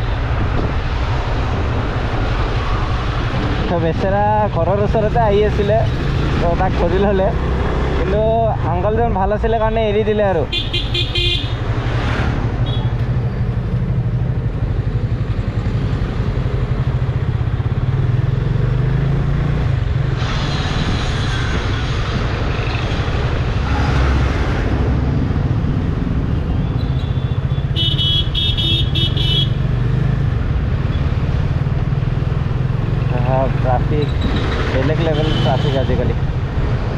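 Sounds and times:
vehicle horn beeping: 10.5s - 11.6s, 26.7s - 29.6s.

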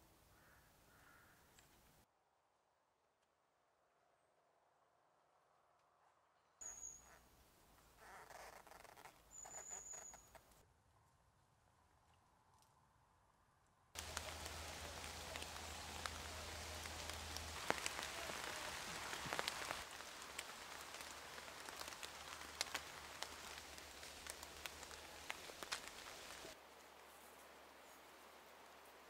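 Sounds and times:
drops ticking on leaves: 14.0s - 29.0s
rain pattering in woodland: 14.0s - 29.0s.

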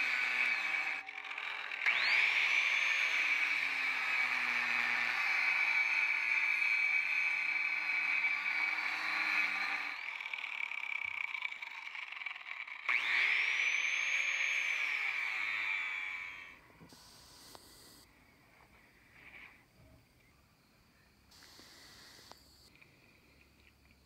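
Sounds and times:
angle grinder cutting steel: 0.0s - 18.0s.

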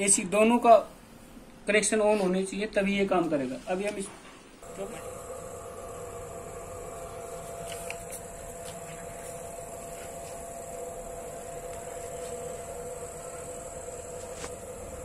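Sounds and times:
charger cooling fan humming: 4.6s - 15.0s.

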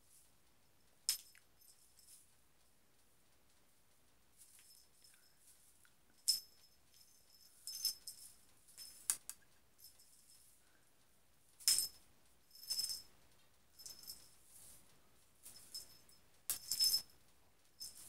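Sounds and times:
cat toy jingling: 6.2s - 9.2s, 11.6s - 13.1s, 13.8s - 14.8s, 17.8s - 18.0s.

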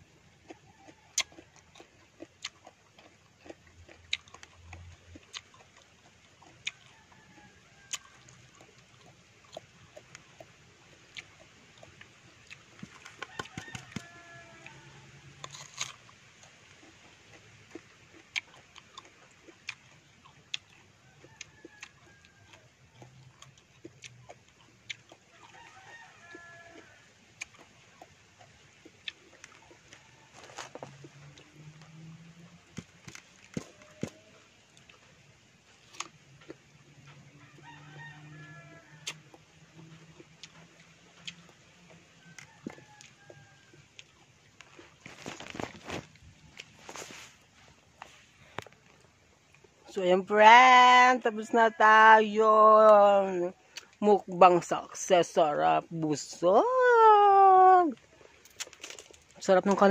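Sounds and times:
person biting crisp fruit: 0.4s - 6.8s, 7.9s - 35.0s, 35.8s - 36.7s, 38.8s - 41.6s, 44.0s - 49.8s, 58.2s - 59.4s
rooster crowing: 6.8s - 8.4s, 13.1s - 15.6s, 21.0s - 23.4s, 25.3s - 27.2s, 37.0s - 39.3s, 42.1s - 44.0s.

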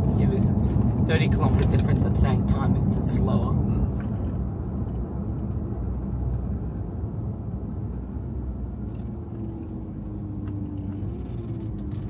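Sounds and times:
car interior road rumble: 0.0s - 12.0s.

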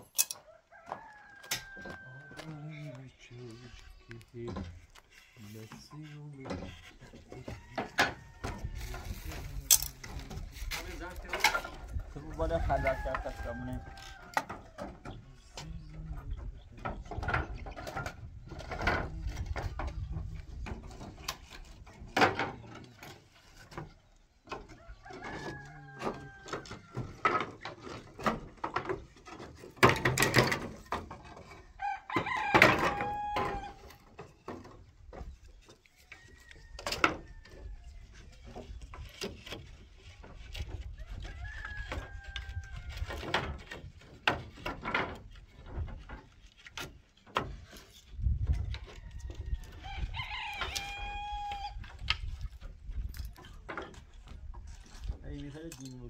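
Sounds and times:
rooster crowing: 0.4s - 2.7s, 12.6s - 14.8s, 24.9s - 27.1s, 31.8s - 33.8s, 41.0s - 43.1s, 48.9s - 51.8s
sharp knocks and clatter: 14.3s - 24.8s, 26.5s - 31.6s, 43.1s - 48.9s.

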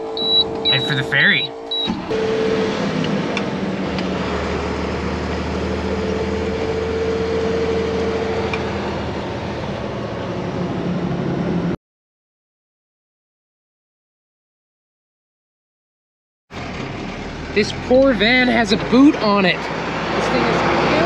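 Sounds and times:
truck engine hum: 0.0s - 11.8s, 16.5s - 21.0s
tyre and road noise: 0.0s - 11.8s, 16.5s - 21.0s
faint whine: 0.2s - 2.8s.

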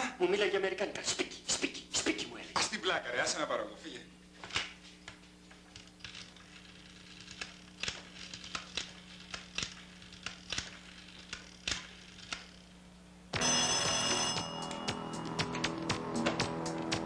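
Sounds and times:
steady low hum: 0.0s - 17.0s
loud music: 13.7s - 17.0s.

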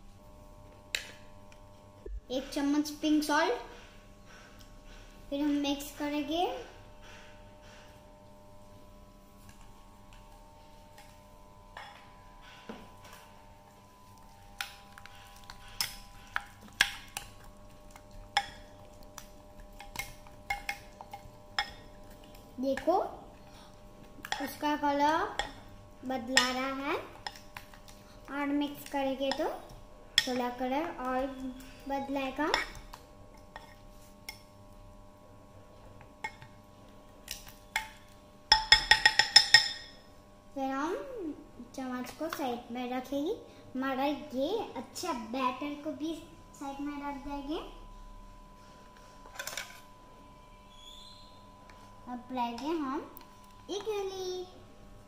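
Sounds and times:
spatula tapping glass bowl: 38.5s - 39.9s.

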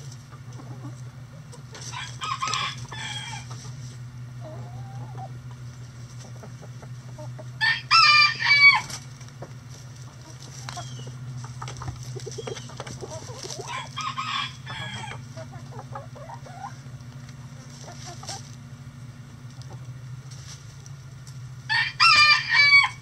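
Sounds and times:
hens clucking softly: 0.0s - 21.4s
steady low hum: 0.0s - 23.0s
rooster crowing: 1.9s - 3.5s, 7.6s - 9.0s, 13.6s - 15.2s, 21.7s - 23.0s.

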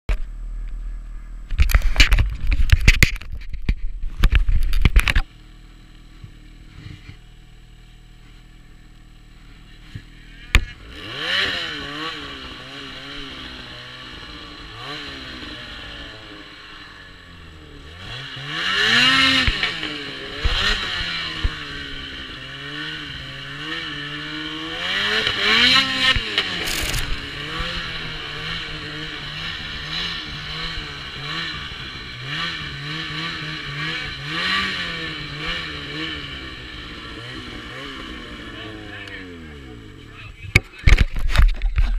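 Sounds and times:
snowmobile engine revving: 5.1s - 41.0s
rough buffeting bursts: 9.6s - 40.4s.

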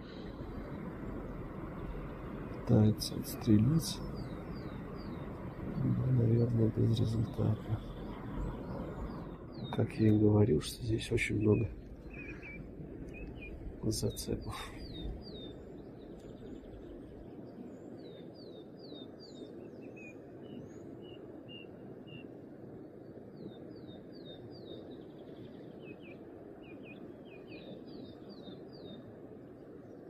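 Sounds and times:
low rushing outdoor ambience: 0.0s - 30.0s
songbirds chirping: 0.0s - 30.0s.

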